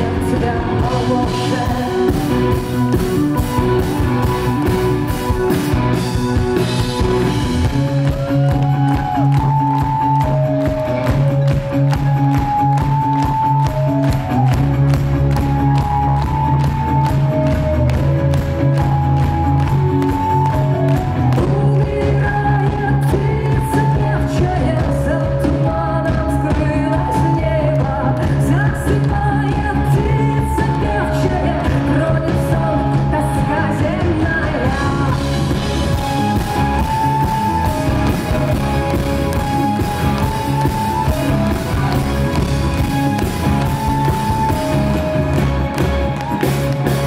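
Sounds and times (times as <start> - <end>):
woman singing: 0.0 - 2.8, 21.0 - 35.6
rock band playing: 0.0 - 47.0.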